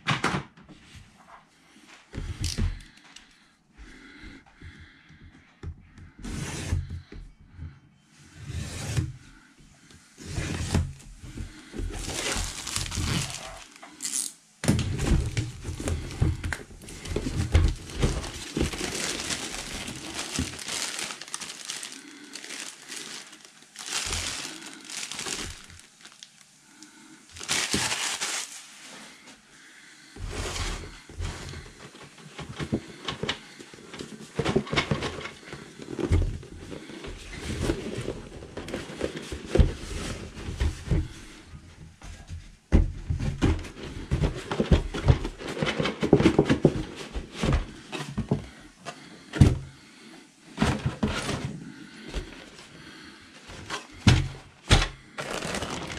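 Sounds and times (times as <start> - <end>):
plastic shrink-wrap crinkling and tearing: 12.0 - 14.4, 15.2 - 26.6, 27.2 - 28.8, 55.2 - 55.9.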